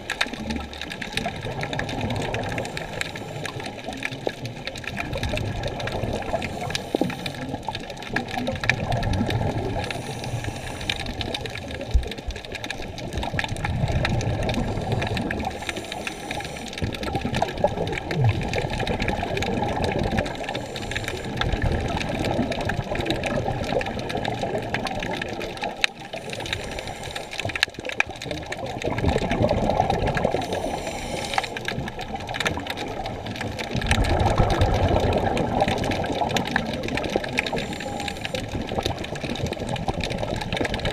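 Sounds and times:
crackle of clicks: 0.0 - 40.9
muffled underwater rushing hiss: 1.8 - 8.0, 8.9 - 12.0, 13.8 - 23.2, 25.0 - 28.1, 29.2 - 32.9, 34.1 - 40.0.

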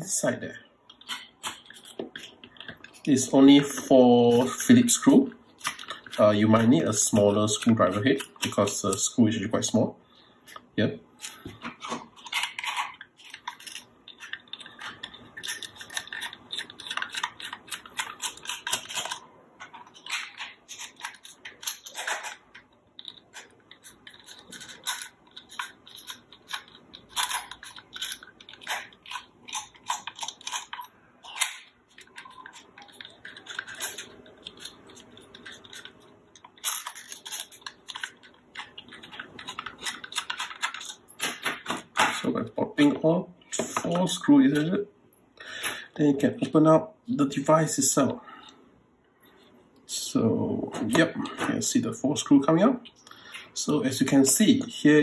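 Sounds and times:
screwdriver clicking and scraping screws: 12.2 - 19.2, 19.8 - 42.2.

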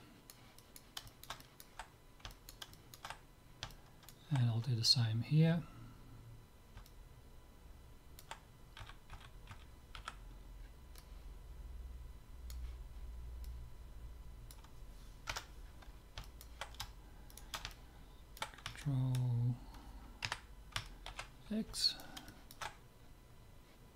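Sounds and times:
faint low steady hum: 0.0 - 23.9
keyboard keys and mouse clicking: 0.3 - 4.5, 8.2 - 10.2, 14.5 - 19.3, 22.0 - 22.8.

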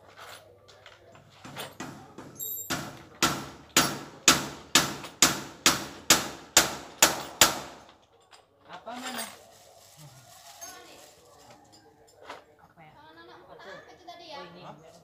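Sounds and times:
hammer striking steel door: 1.5 - 7.9.

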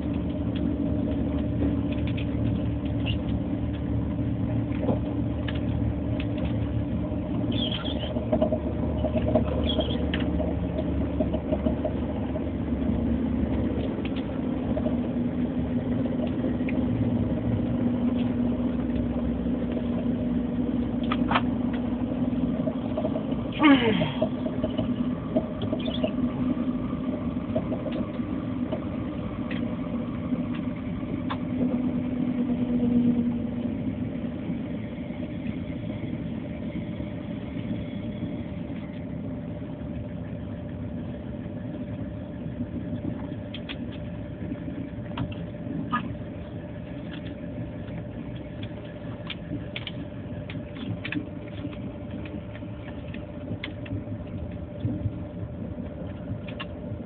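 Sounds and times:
low hum: 0.0 - 57.0
train running rumble: 0.0 - 57.0.

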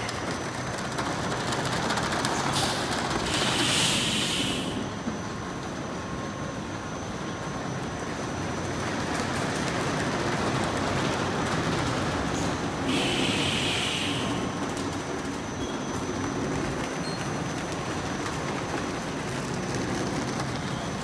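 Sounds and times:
hiss: 2.3 - 5.0, 12.3 - 14.6.

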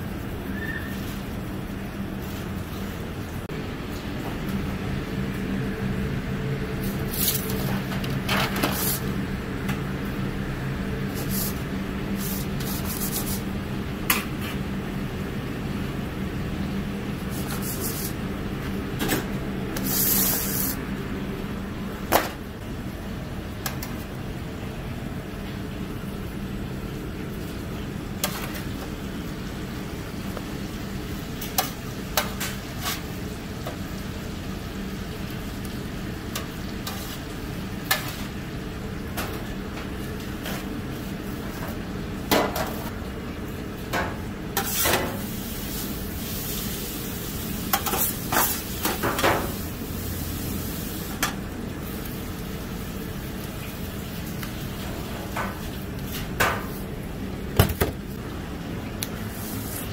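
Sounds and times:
low ventilation fan hum: 0.0 - 59.9
metal scoop scraping foil tray: 7.1 - 7.7, 8.3 - 9.0, 17.3 - 18.2.

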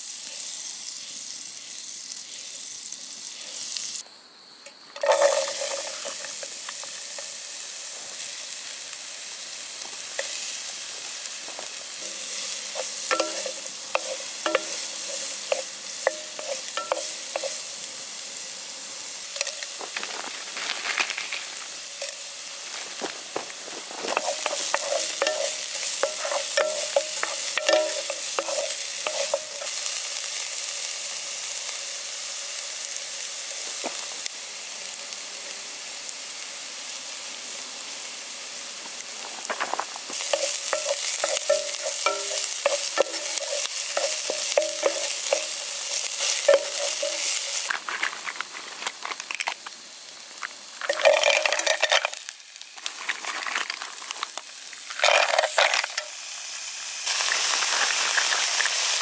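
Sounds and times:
food sizzling in a pan: 0.0 - 59.0
metal utensil scraping a pan: 5.0 - 7.4, 11.9 - 17.7, 23.9 - 29.9, 40.1 - 49.2, 55.0 - 56.2.

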